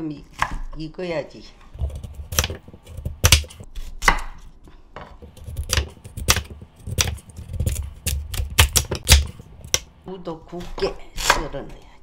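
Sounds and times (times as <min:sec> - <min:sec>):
knife slicing potato: 0:01.7 - 0:04.5, 0:05.2 - 0:10.0
knife knocking on wooden board: 0:01.8 - 0:03.7, 0:05.2 - 0:09.9.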